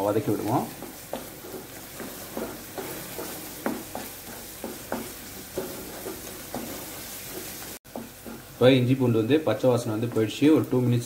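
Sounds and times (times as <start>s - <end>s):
spatula scraping and stirring: 0.0s - 8.7s
vegetables sizzling in oil: 0.0s - 11.0s.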